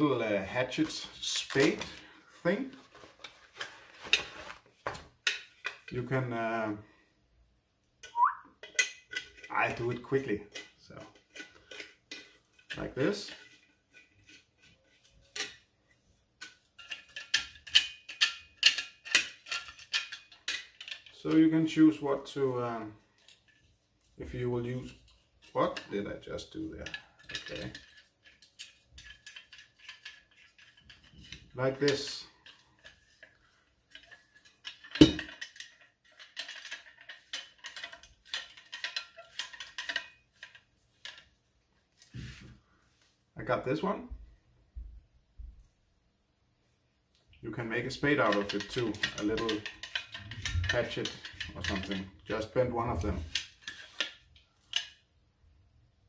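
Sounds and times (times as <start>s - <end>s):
metal clicks and rattles: 16.4s - 21.4s, 24.8s - 41.4s, 47.8s - 55.0s.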